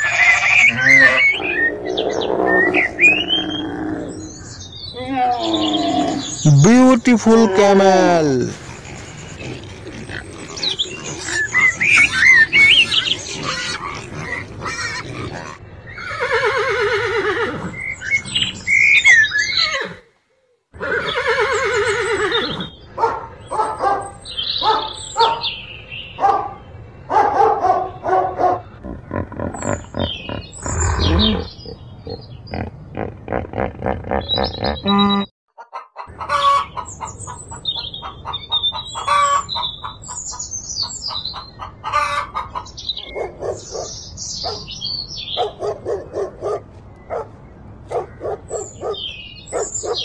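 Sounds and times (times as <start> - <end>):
pigs grunting and squealing: 0.0 - 4.3, 5.0 - 16.3, 28.8 - 35.3
animal calls and snorts: 8.0 - 15.6, 17.6 - 19.7, 28.6 - 35.3
horse whinnying: 8.0 - 20.0, 20.8 - 22.7, 28.8 - 31.6.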